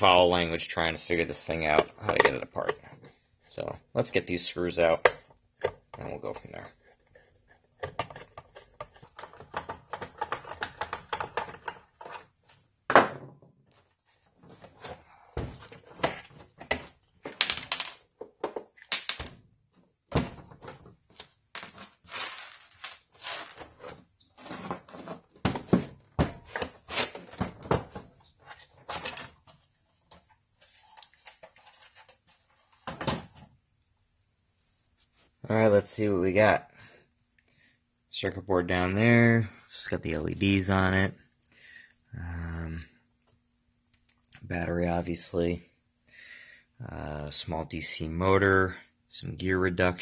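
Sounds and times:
plastic clicks and scrapes: 6.8s - 12.3s.

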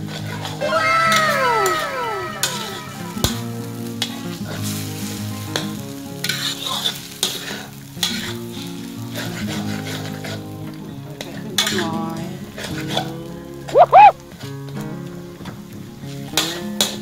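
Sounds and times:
noodles and egg sizzling in wok: 0.4s - 10.7s.

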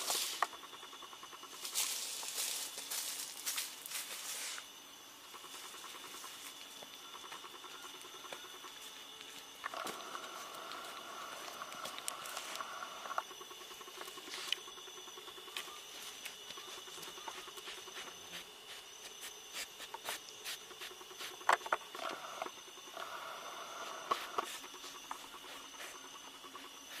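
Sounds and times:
insects calling: 0.0s - 27.0s.

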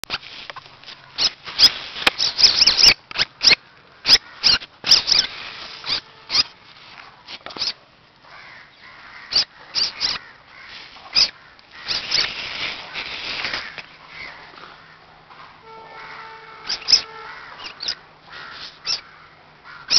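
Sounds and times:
civet kitten squeaky calls: 1.1s - 6.6s, 9.3s - 10.2s, 11.1s - 12.4s, 16.0s - 19.1s.

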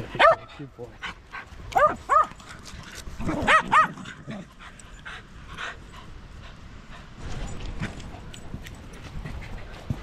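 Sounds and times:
dog barking: 0.2s - 0.5s, 1.7s - 2.3s, 3.4s - 4.0s.

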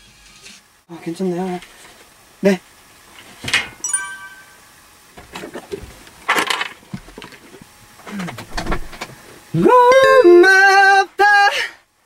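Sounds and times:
brief ringing tone: 3.8s - 4.9s.

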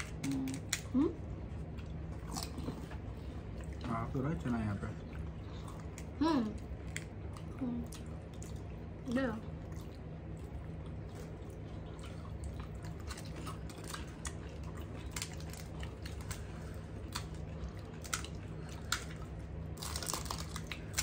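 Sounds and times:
crisp shells cracking: 0.0s - 0.9s, 13.1s - 16.5s, 19.8s - 21.0s
steady low hum: 0.0s - 21.0s.

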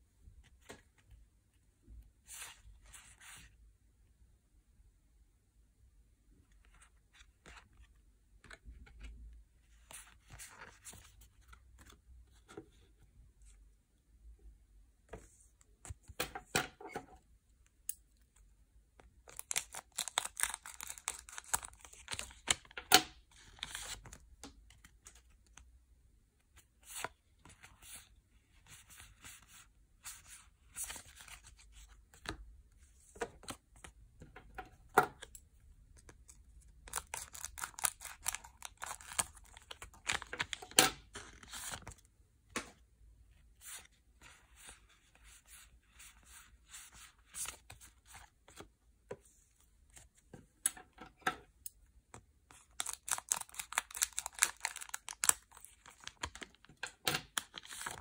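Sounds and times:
cards rustling: 19.3s - 22.8s, 28.8s - 32.4s, 36.0s - 42.0s, 52.5s - 56.7s
foil packs crinkling and tearing: 52.8s - 56.2s.

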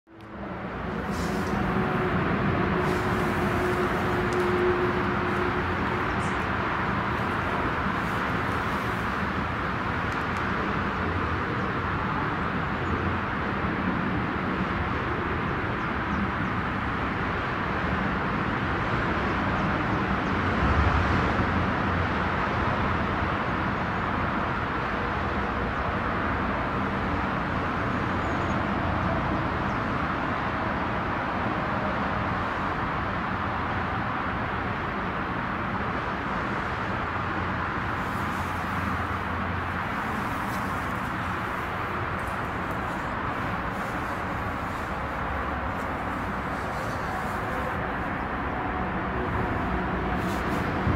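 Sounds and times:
distant vehicle rumble: 0.1s - 14.9s, 31.0s - 50.9s.

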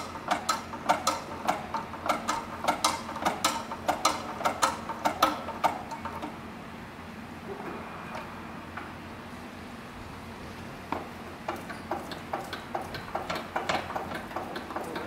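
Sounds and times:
pump mechanism clicking: 0.0s - 6.4s, 11.4s - 15.0s
faint steady hum: 0.0s - 11.6s.

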